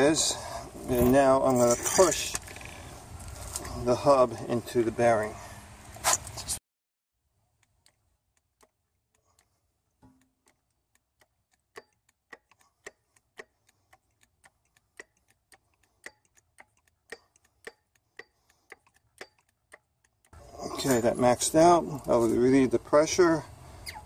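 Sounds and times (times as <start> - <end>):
hydraulic pump clicking: 10.1 - 20.4.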